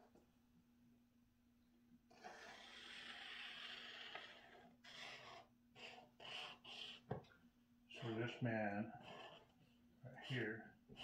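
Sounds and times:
pen scratching on paper: 0:02.1 - 0:07.1, 0:08.0 - 0:11.0.

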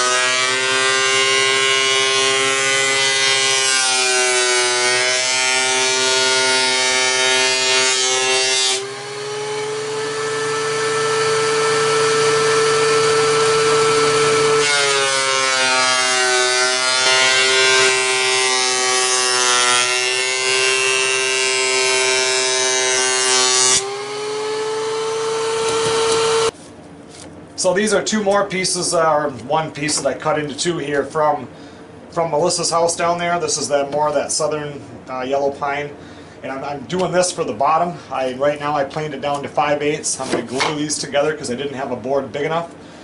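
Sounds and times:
thickness planer motor whine: 0:08.8 - 0:26.5.

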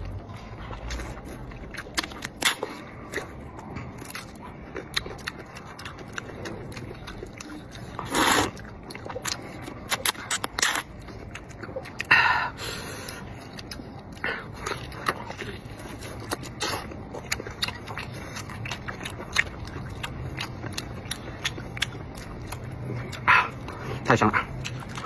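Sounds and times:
noodles slurped and chewed: 0:00.0 - 0:25.0
wet mouth clicks and lip smacks: 0:08.1 - 0:12.1.

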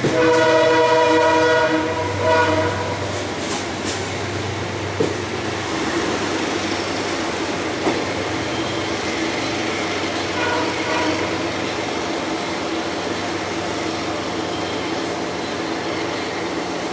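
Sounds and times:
rail joint clicks: 0:00.0 - 0:00.7, 0:03.0 - 0:10.5, 0:11.2 - 0:16.9
train horn blast: 0:00.0 - 0:03.4, 0:10.3 - 0:11.6
train wheels rumbling on rail: 0:00.0 - 0:16.9.

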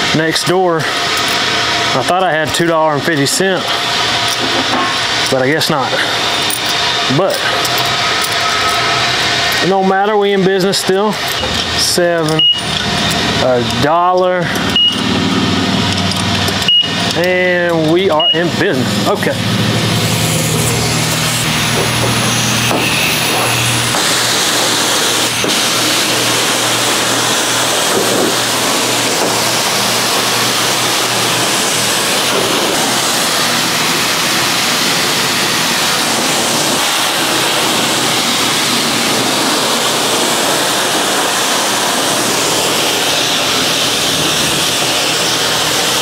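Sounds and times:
pressure washer spraying water: 0:00.0 - 0:46.0
low hum: 0:11.1 - 0:34.2.

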